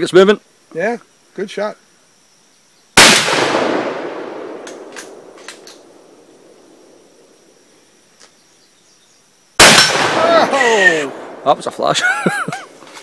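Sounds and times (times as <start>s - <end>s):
rifle shot echo: 3.0s - 6.9s, 9.6s - 11.5s.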